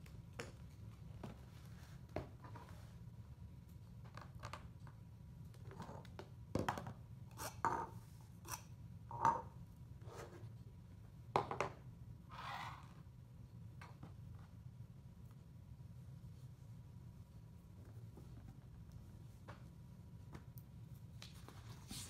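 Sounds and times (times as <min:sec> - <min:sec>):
plastic cups and toys knocking: 0:11.4 - 0:11.8.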